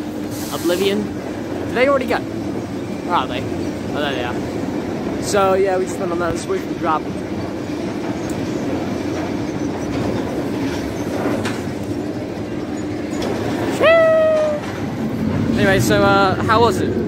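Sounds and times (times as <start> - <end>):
roller coaster train rumbling: 0.0 - 17.0
person whooping: 13.8 - 14.8.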